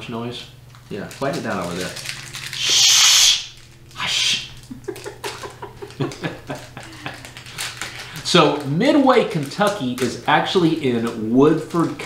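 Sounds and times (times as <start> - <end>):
wrapper crinkles and clicks: 0.7 - 2.7, 3.5 - 4.0, 4.6 - 12.0
plastic wrapper hissing: 0.8 - 12.0
soft laughter: 4.6 - 7.4.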